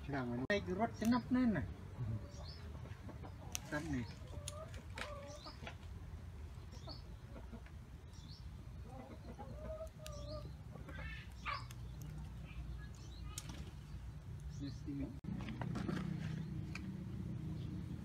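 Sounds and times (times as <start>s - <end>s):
chickens clucking: 1.8s - 14.1s.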